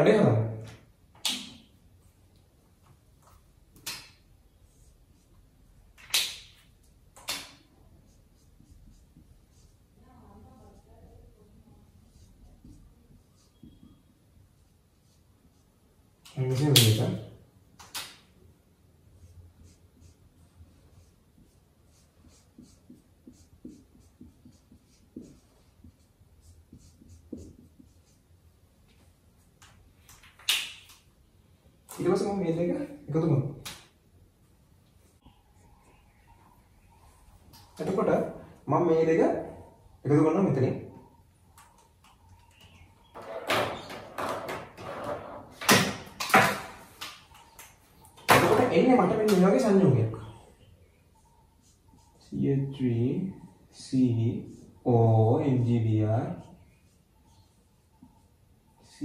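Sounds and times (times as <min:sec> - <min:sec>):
marker squeaking on whiteboard: 0:06.4 - 0:10.0, 0:10.7 - 0:15.8, 0:19.0 - 0:31.1, 0:34.9 - 0:59.0.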